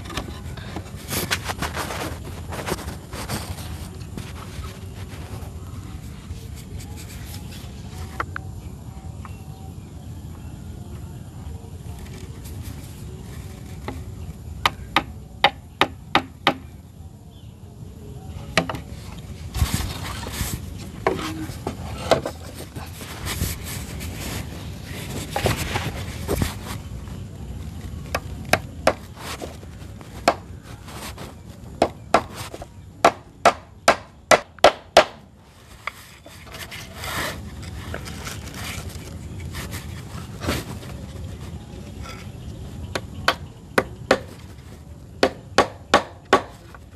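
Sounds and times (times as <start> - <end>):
hand tool striking wood: 14.6 - 16.7, 18.6 - 18.9, 28.1 - 29.1, 30.2 - 30.5, 31.8 - 35.2, 42.9 - 44.4, 45.2 - 46.7.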